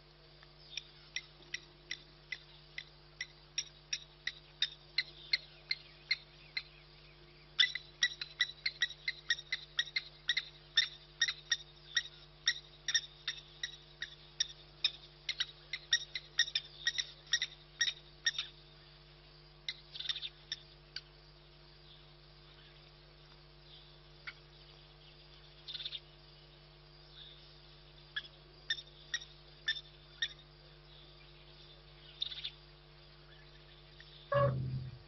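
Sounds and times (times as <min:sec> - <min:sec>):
short sharp animal calls: 0:34.3 - 0:35.0.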